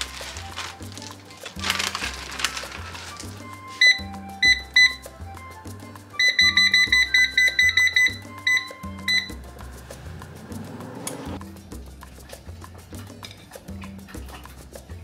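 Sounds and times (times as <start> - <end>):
background music: 0.0 - 15.0
control panel beeping: 6.2 - 9.4.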